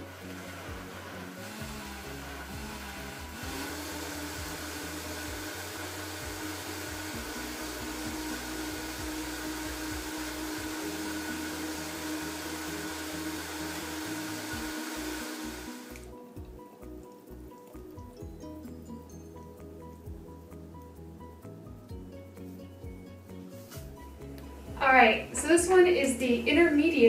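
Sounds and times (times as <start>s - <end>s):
blender motor whirring: 0.0s - 16.2s.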